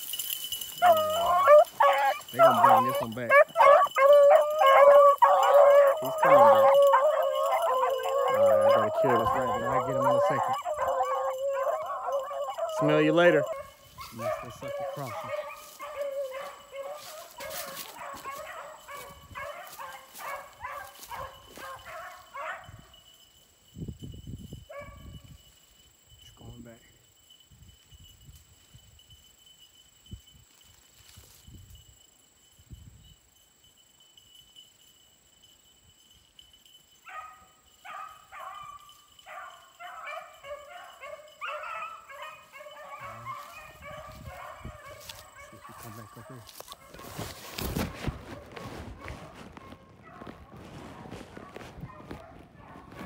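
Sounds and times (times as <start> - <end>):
dogs baying: 0.0 - 22.7, 37.1 - 53.0.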